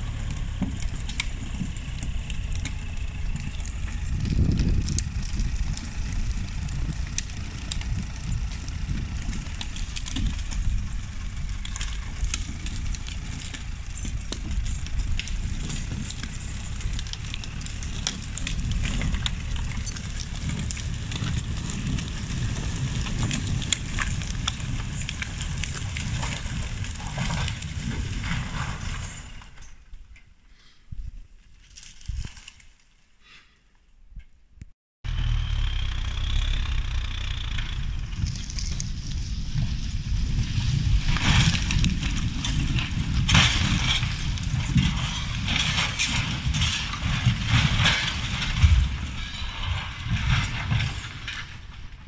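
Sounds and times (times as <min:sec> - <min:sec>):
diesel engine under load: 0:00.0 - 0:29.9, 0:35.0 - 0:52.0
logs and brush crackling: 0:00.0 - 0:33.5, 0:35.1 - 0:52.0.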